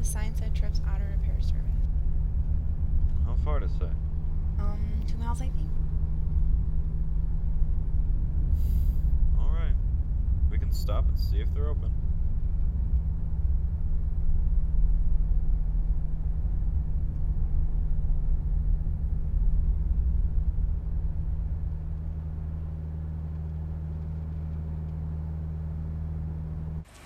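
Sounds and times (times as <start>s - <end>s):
truck engine hum in cab: 0.0s - 27.0s.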